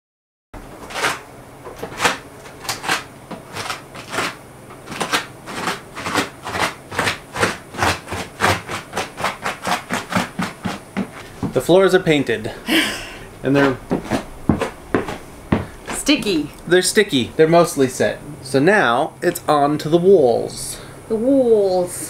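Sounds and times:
sneakers peeling off sticky floor: 9.6 - 11.8, 13.5 - 16.5.

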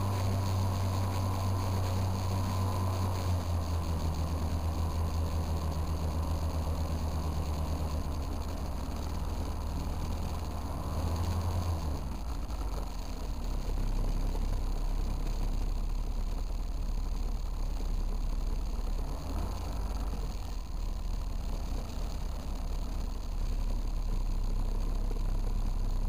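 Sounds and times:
engine and propeller droning: 0.0 - 16.5.

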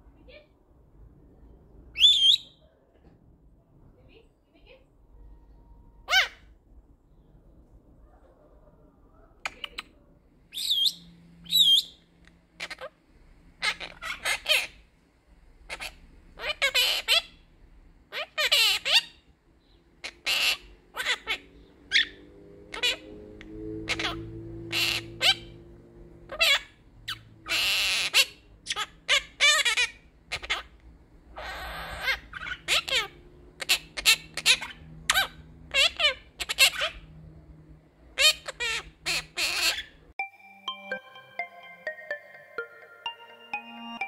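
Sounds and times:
parrot chirping: 1.9 - 2.6, 6.0 - 6.5, 9.4 - 13.0, 13.6 - 14.9, 15.6 - 40.1
parrot harsh chattering calls: 6.0 - 6.5, 9.4 - 13.0, 13.6 - 14.8, 15.6 - 17.4, 18.1 - 19.3, 20.0 - 23.2, 23.8 - 25.6, 26.3 - 37.2, 38.1 - 40.0.

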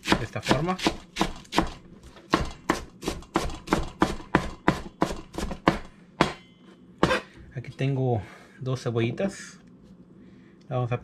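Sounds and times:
knife chopping lettuce on board: 0.0 - 6.4.

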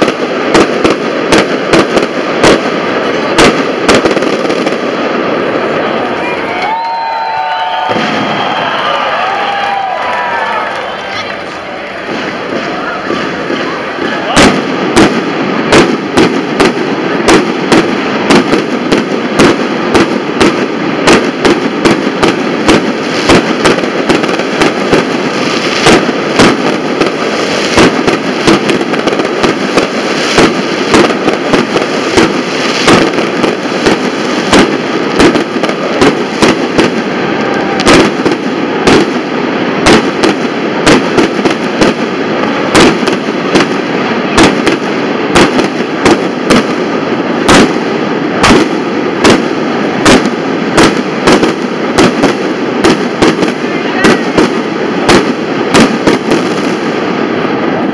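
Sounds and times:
fireworks bangs: 0.0 - 57.9
continuous din: 7.8 - 20.1.

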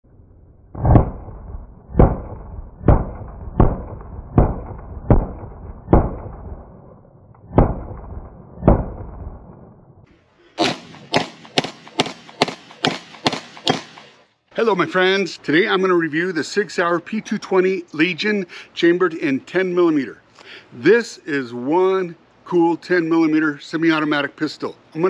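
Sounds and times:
pistol shots: 1.9 - 6.5, 10.6 - 14.1.

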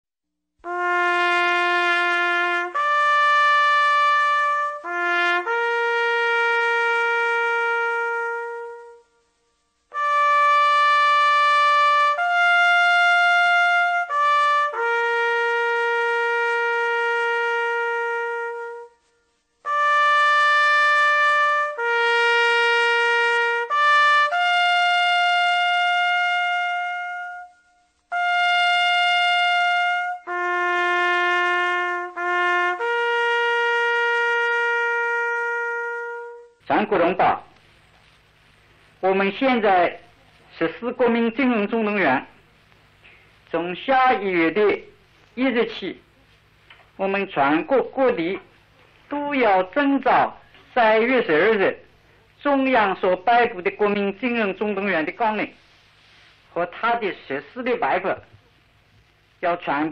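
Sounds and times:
bugle call on brass horn: 0.6 - 9.2, 9.9 - 37.6.

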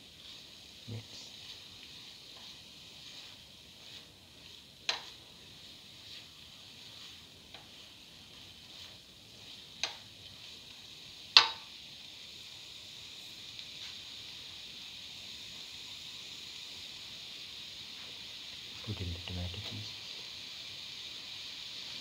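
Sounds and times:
paste sizzling in a pan: 0.0 - 22.0
spatula knocking against pan: 4.9 - 5.2, 11.4 - 11.7.

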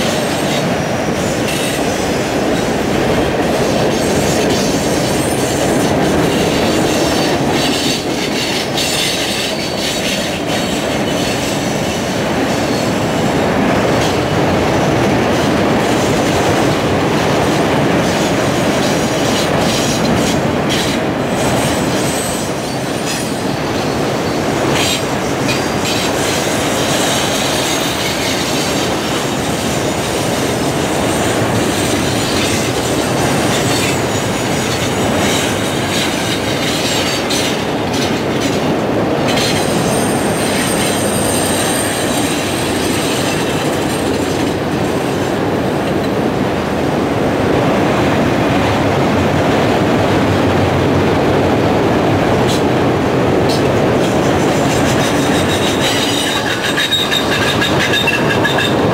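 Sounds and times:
train wheels rumbling on rail: 0.0 - 58.9
high wheel squeal: 3.6 - 13.0, 18.1 - 30.0, 39.3 - 45.2, 54.0 - 58.9.

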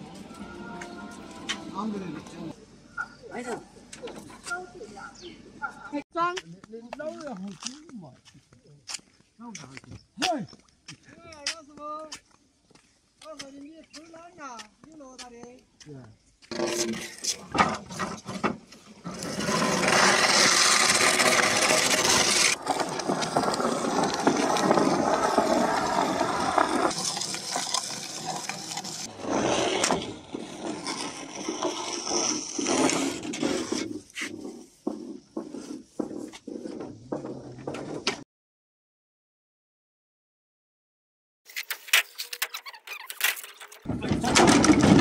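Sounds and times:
bamboo poles scraping on concrete: 16.5 - 38.2, 41.5 - 45.0
bamboo poles knocking and clattering: 34.3 - 38.2, 41.6 - 45.0.

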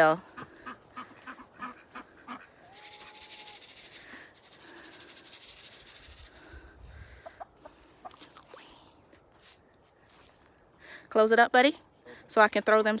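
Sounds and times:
dry rustling rasping noise: 2.8 - 6.6.

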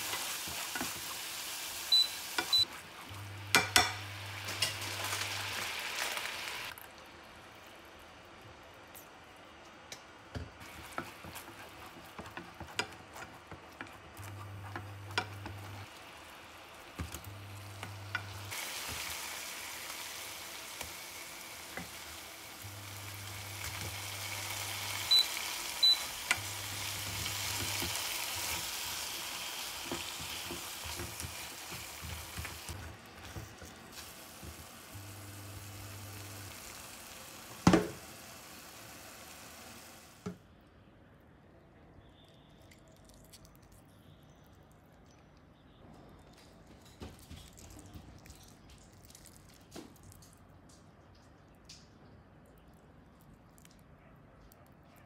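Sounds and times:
sauce sizzling in frying pan: 0.0 - 6.8, 10.6 - 12.3, 15.1 - 40.3.

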